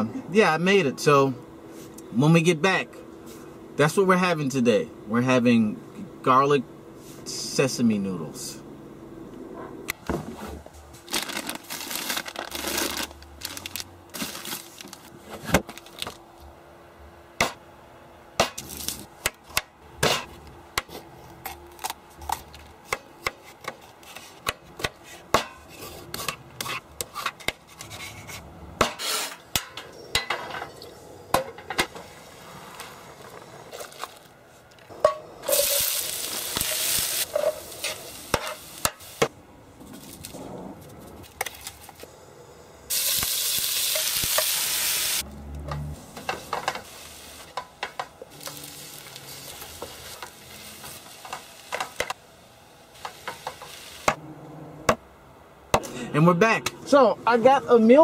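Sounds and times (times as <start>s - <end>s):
hiss-like noise: 35.3s - 39.3s, 41.9s - 45.2s, 46.0s - 47.6s, 48.3s - 54.2s.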